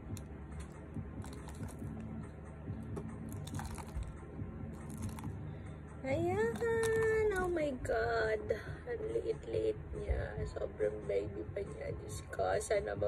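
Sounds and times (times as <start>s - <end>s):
hands crunching potting soil: 0.0s - 2.1s, 3.0s - 5.4s, 6.4s - 7.5s.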